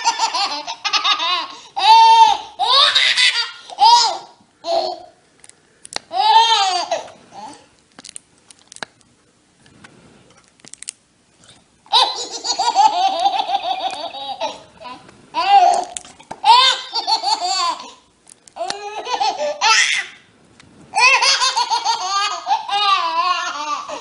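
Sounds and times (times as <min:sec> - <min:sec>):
baby laughing loudly: 0:00.0 - 0:05.1, 0:11.9 - 0:18.0, 0:18.6 - 0:20.2, 0:21.0 - 0:24.0.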